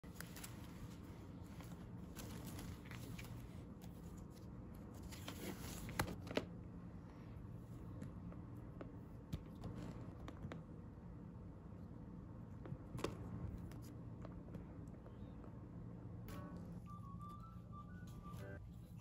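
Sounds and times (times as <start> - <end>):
paper pages rustling: 0.0 - 6.5.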